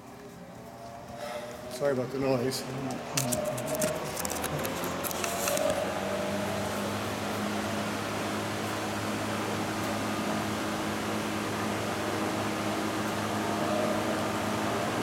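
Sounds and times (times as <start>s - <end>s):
drum fan running: 0.0s - 15.0s.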